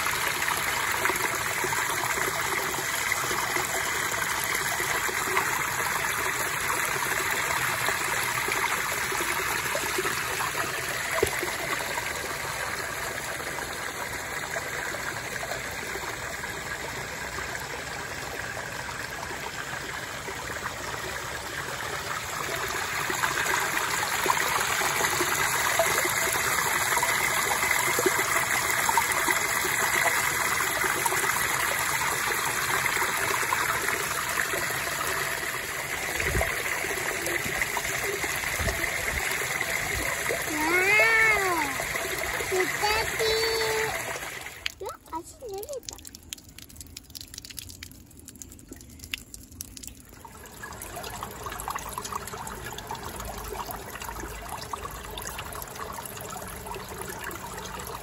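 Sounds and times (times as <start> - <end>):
water pouring and splashing: 0.0 - 58.0.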